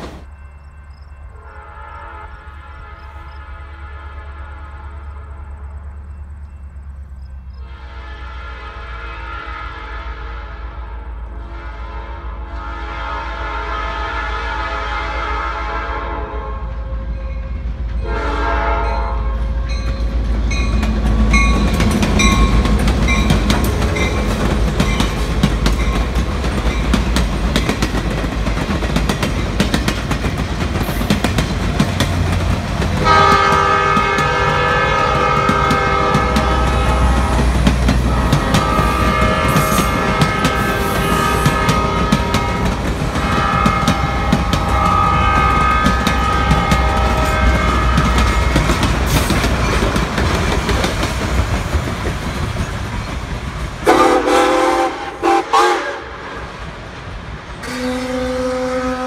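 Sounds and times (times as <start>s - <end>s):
locomotive chime air horn: 0.0s - 27.0s, 33.0s - 49.8s, 53.8s - 56.4s, 57.6s - 59.0s
steam locomotive whistle: 1.2s - 6.1s, 7.6s - 19.8s, 33.0s - 49.4s, 53.8s - 56.6s, 57.6s - 59.0s
train wheels clicking over rail joints: 19.6s - 55.0s.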